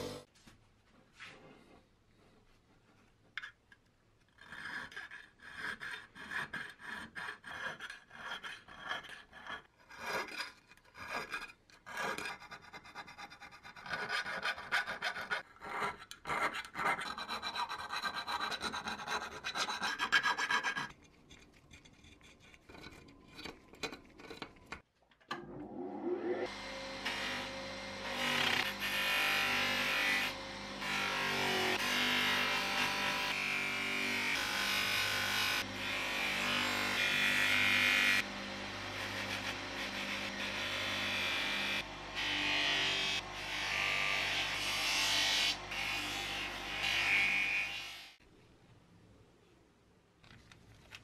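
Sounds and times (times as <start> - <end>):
polishing wheel motor: 0.0 - 0.3, 34.8 - 44.4
needle file rasping on steel: 4.3 - 24.8.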